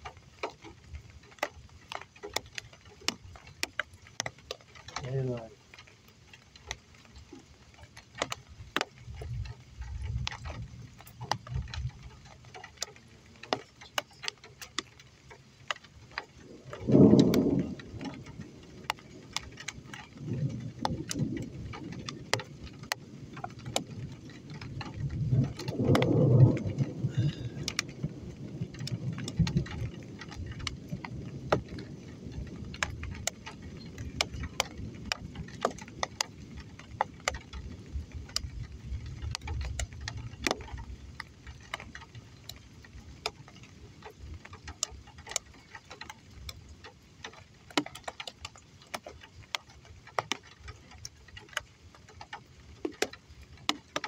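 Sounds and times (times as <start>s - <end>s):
raindrops ticking on surface: 0.0s - 54.0s
distant thunder rumbling: 16.3s - 42.5s.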